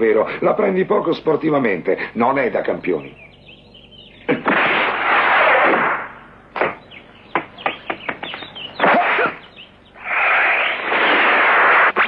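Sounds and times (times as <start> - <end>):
sharp crack: 4.3 - 12.0.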